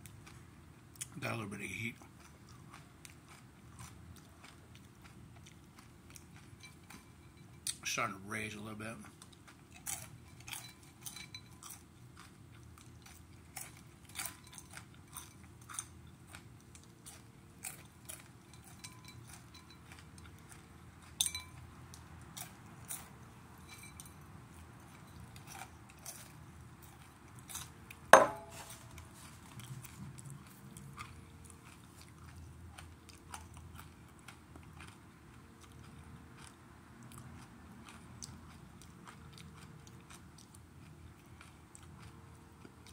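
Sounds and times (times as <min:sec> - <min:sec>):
chewing and crunching: 0:00.0 - 0:42.9
glass bowl knocking on table: 0:28.2 - 0:28.6.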